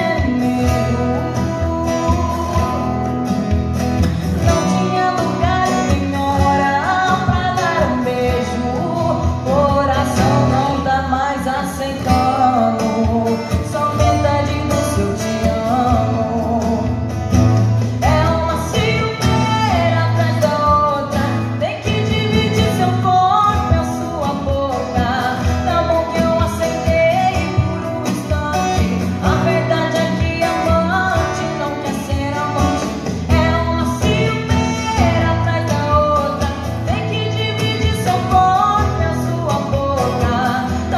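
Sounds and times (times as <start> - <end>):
acoustic guitar: 0.0 - 40.9
woman singing into a microphone: 0.0 - 40.9.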